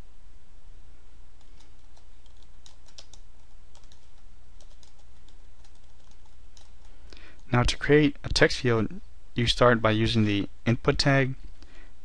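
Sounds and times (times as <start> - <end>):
steady low hum: 0.0 - 12.0
typing on a computer keyboard: 1.4 - 7.5.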